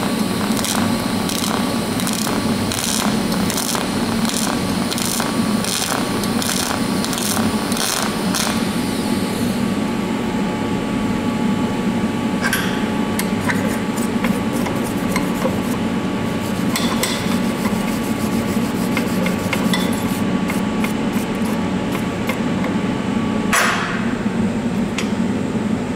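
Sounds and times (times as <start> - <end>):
welding arc crackling buzz: 0.0 - 9.7, 13.2 - 22.7
steady low hum: 0.0 - 25.9.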